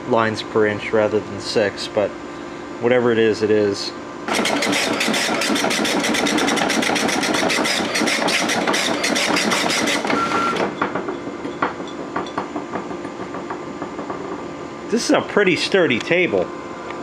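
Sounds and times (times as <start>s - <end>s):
dot matrix printer chattering: 4.3s - 10.5s.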